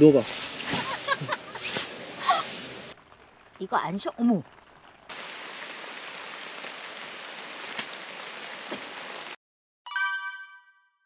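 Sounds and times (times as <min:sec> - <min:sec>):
steady rain-like hiss: 0:00.0 - 0:09.4
bright chime: 0:09.9 - 0:11.0.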